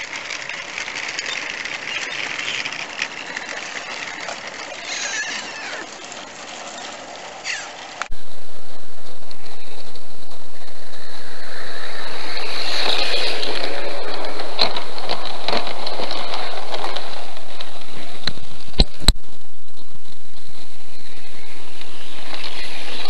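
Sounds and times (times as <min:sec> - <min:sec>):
model train rolling past: 0:00.0 - 0:18.8, 0:19.6 - 0:23.0
microphone hiss: 0:08.0 - 0:23.0.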